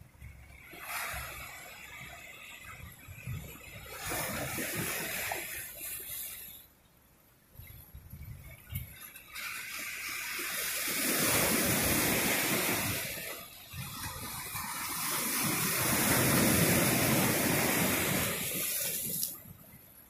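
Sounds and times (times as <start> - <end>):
ocean surf breaking on rocks: 8.7 - 19.4.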